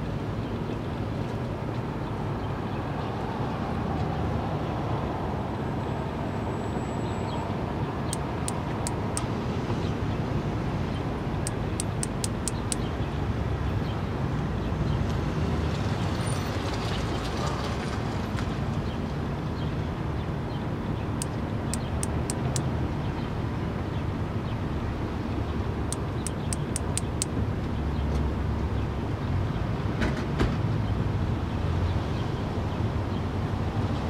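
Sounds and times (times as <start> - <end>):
cicada wing clicks: 8.1 - 9.3, 11.4 - 12.9, 21.2 - 22.7, 25.9 - 27.3.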